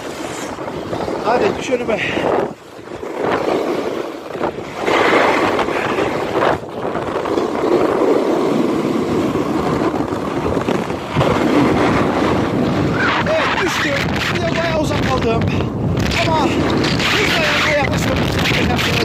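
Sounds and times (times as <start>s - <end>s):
skis scraping on icy snow: 0.0s - 1.7s, 2.8s - 14.8s
wind buffeting microphone: 0.0s - 19.0s.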